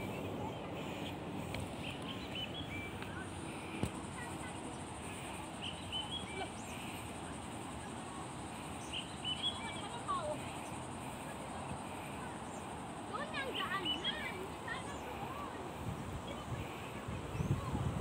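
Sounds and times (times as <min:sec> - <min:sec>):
outdoor background noise: 0:00.0 - 0:18.0
small birds chirping: 0:00.0 - 0:18.0.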